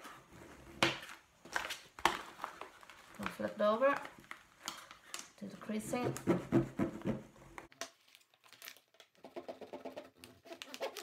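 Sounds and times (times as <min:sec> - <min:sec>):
plastic bag crinkling: 0:01.4 - 0:05.3.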